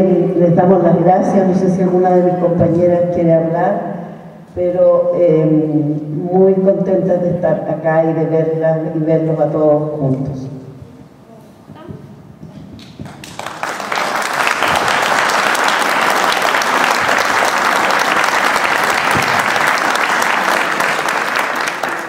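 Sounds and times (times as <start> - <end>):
audience applauding: 12.9 - 22.0.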